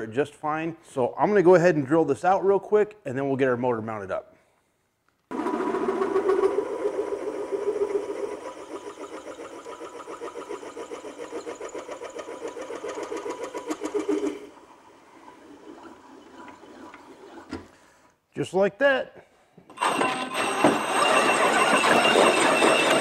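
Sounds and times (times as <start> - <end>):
milling machine drilling: 19.7 - 23.0.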